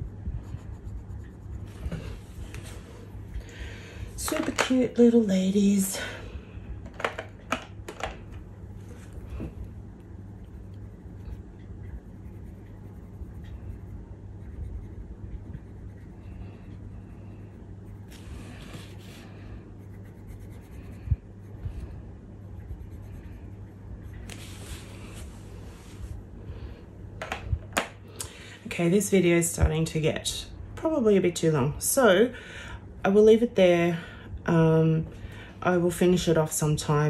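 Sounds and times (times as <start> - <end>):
pencil scratching on paper: 0.4 - 2.2, 12.0 - 16.1, 19.8 - 21.1.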